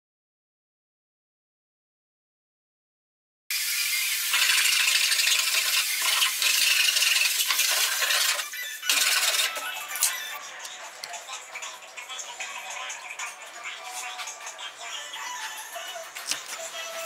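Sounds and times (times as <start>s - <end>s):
handsaw cutting wood: 3.9s - 9.6s.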